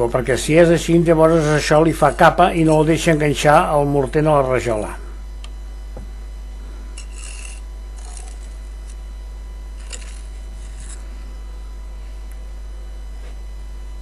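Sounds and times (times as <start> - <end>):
steady low hum: 0.0 - 14.0
trowel scraping mortar on brick: 7.0 - 9.0, 9.8 - 11.0.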